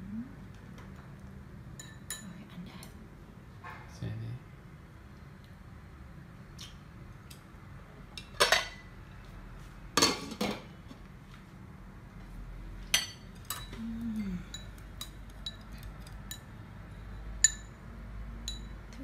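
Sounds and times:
utensils clinking on pot and bowls: 1.8 - 2.4, 8.2 - 8.9, 12.9 - 17.8, 18.4 - 19.0.

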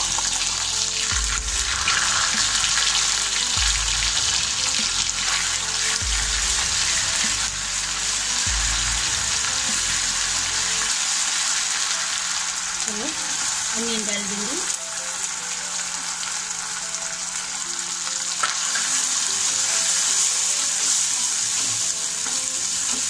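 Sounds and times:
oil sizzling in a pan: 0.0 - 23.0.

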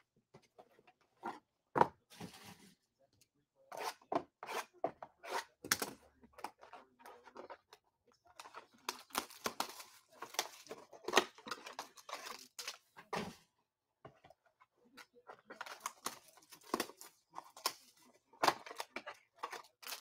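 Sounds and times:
packaging tearing and crinkling: 8.8 - 12.8, 15.6 - 20.0.

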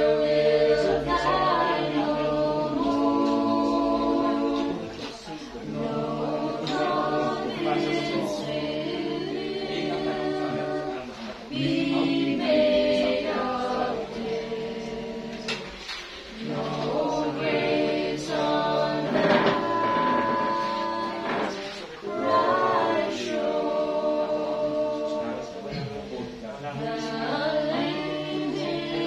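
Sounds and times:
congregation singing a hymn: 0.0 - 29.0.

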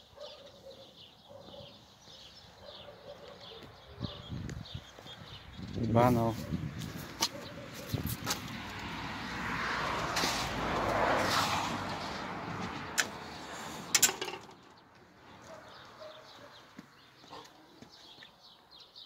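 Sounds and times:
car passing by: 8.2 - 14.1.

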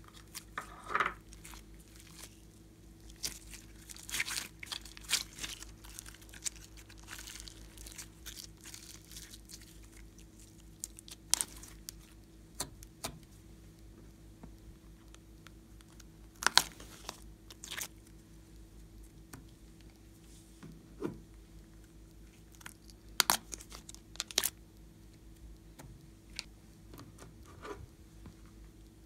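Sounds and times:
slime crackling and clicking: 22.5 - 24.6.

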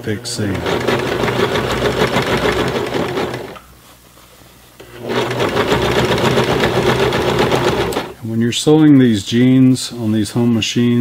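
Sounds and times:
sewing machine stitching: 0.4 - 3.6, 4.9 - 8.2.

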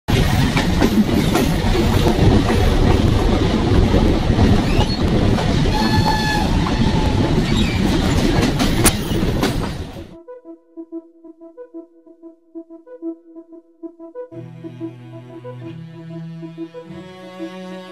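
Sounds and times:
wheels clattering on rails: 0.1 - 10.0.

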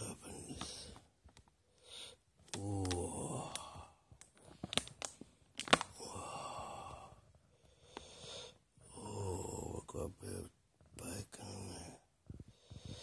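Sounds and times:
breathy exhalation: 1.7 - 4.8, 5.8 - 9.3
plastic wrapper crackling: 2.4 - 6.0
person sighing: 2.5 - 4.1, 5.8 - 7.3.

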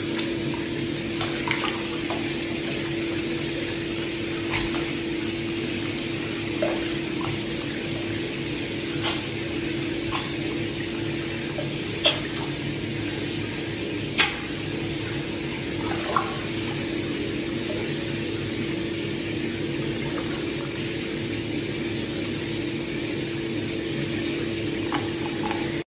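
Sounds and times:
otter splashing with toys: 0.0 - 22.1
steady hum: 0.0 - 25.8
water running in a bathtub: 0.0 - 25.9.

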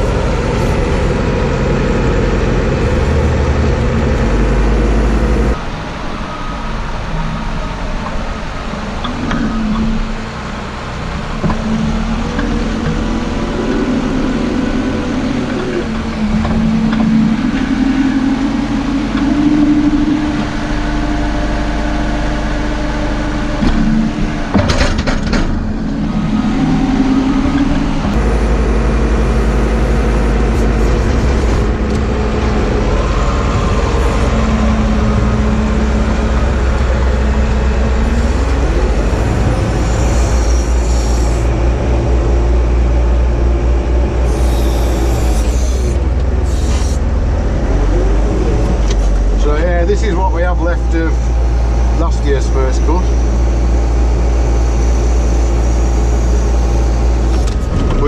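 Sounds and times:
diesel engine running: 0.0 - 58.0.

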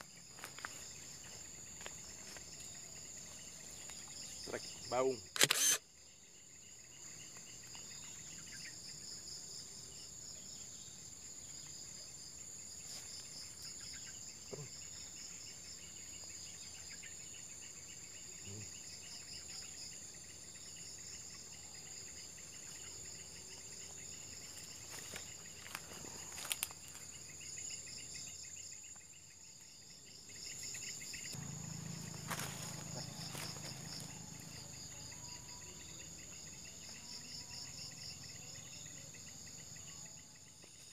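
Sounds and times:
insect chorus: 0.0 - 40.9.

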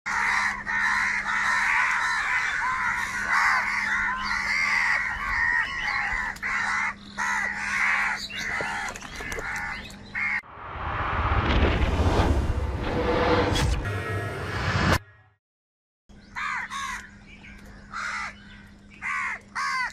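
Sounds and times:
crows cawing: 0.1 - 10.4, 16.3 - 19.9.

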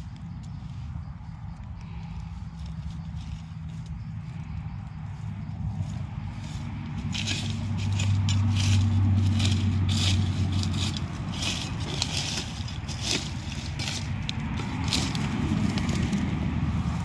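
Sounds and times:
spade scraping soil and leaves: 1.9 - 4.5, 5.2 - 17.0.

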